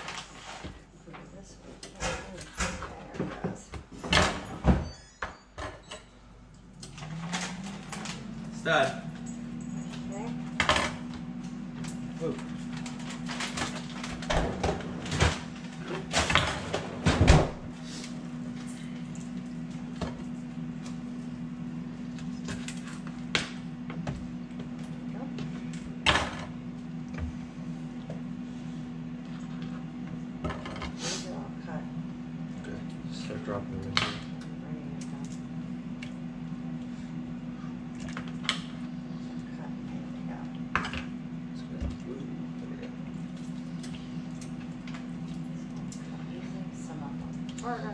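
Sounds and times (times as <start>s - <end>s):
steady low hum: 0.0s - 47.9s
kitchen knocks and clunks: 14.2s - 17.7s.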